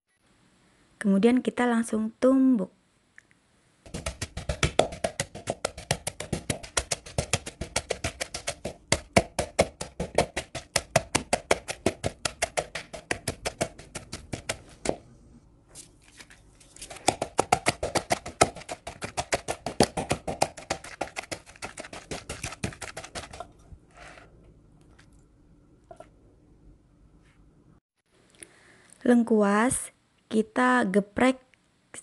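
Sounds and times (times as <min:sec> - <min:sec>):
pestle pounding paste in bowl: 0:03.9 - 0:15.1, 0:16.9 - 0:23.6.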